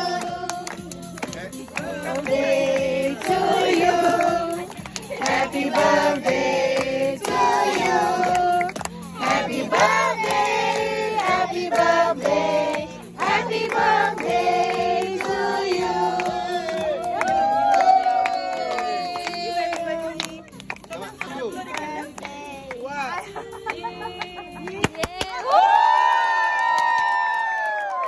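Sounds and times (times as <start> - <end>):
group of people singing: 0.0 - 17.2.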